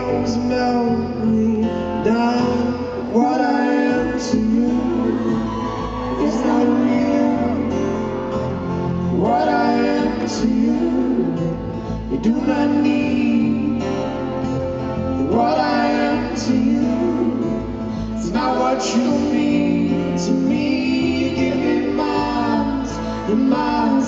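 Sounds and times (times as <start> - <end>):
man singing: 0.0 - 24.0
strummed acoustic guitar: 0.0 - 24.0.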